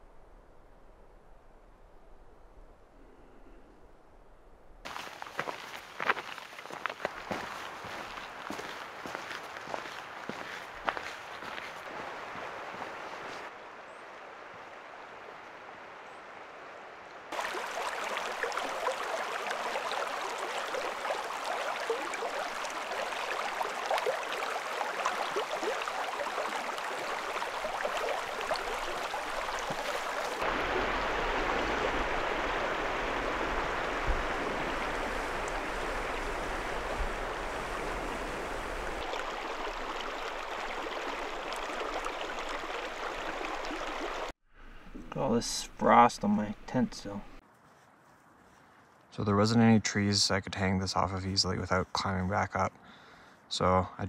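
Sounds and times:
creek running and splashing: 4.8s - 44.4s.

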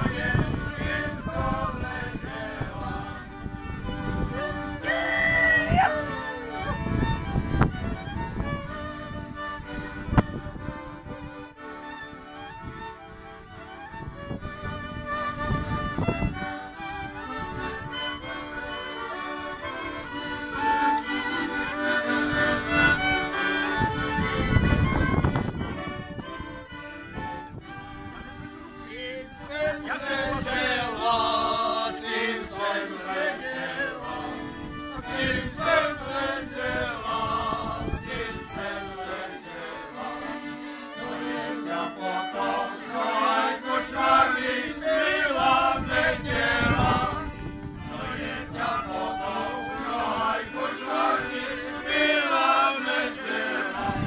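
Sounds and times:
men singing folk song: 0.0s - 3.5s, 4.3s - 6.7s, 28.8s - 54.0s
accordions: 0.0s - 54.0s
fiddle: 0.0s - 54.0s.

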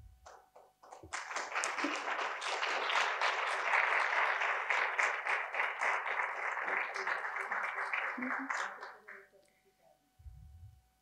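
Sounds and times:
audience applauding: 0.8s - 9.3s.

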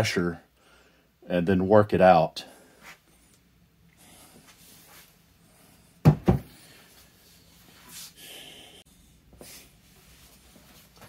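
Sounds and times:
faint rustling and scraping: 4.2s - 5.7s, 9.3s - 11.0s.

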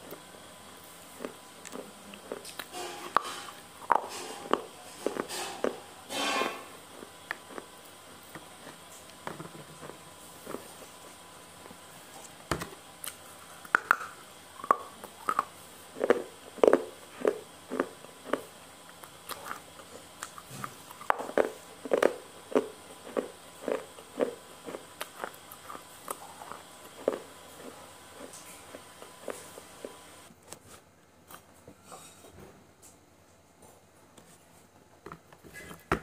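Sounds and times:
chewing with wet mouth clicks: 1.2s - 2.7s, 13.0s - 30.0s.

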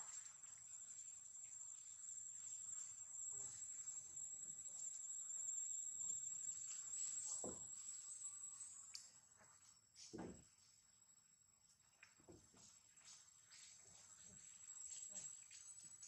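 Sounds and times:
high-pitched insect chorus: 0.0s - 9.2s, 12.6s - 16.0s.

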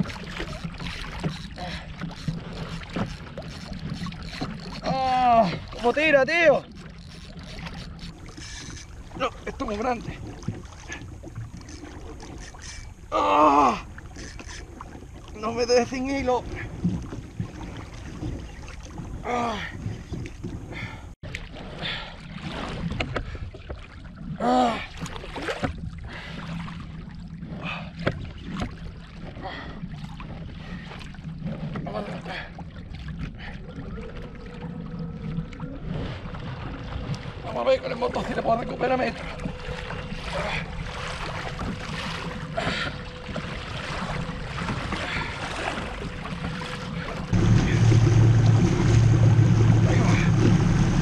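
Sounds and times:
water splashing: 0.0s - 51.0s
wind: 0.0s - 51.0s
electric motor rumble and whine: 46.2s - 51.0s.

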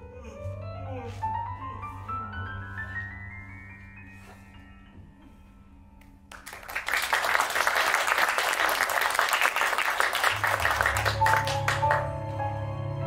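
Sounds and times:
soft instrumental music: 0.0s - 6.7s, 10.2s - 13.0s
audience applauding: 6.3s - 12.2s.

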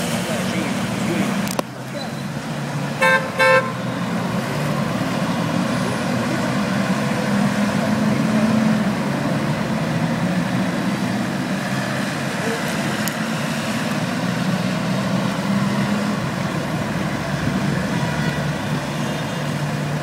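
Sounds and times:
low hum of traffic: 0.0s - 20.0s
car horn toots: 3.0s - 4.0s, 17.9s - 19.2s.

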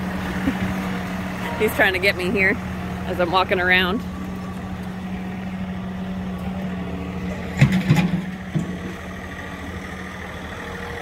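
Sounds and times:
tractor diesel engine running: 0.0s - 11.0s
loud clatter: 7.5s - 8.9s.

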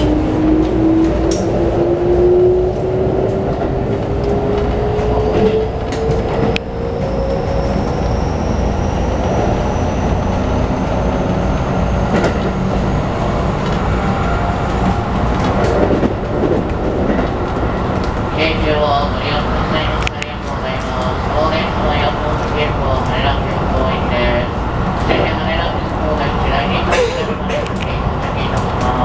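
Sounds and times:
wheels rumbling on rail: 0.0s - 29.0s
rail-joint clicks: 0.6s - 1.6s.

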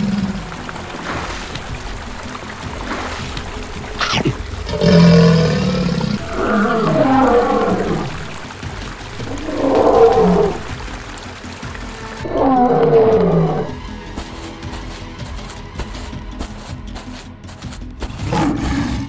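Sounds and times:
background music: 0.0s - 19.0s
lion roaring: 4.0s - 8.4s, 9.2s - 10.8s, 12.2s - 13.8s, 18.2s - 19.0s.

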